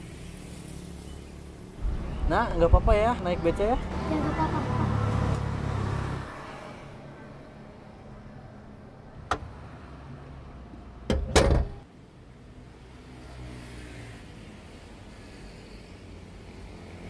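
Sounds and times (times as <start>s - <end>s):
street traffic hum: 0.0s - 17.0s
car lid slamming thumps: 11.1s - 11.8s.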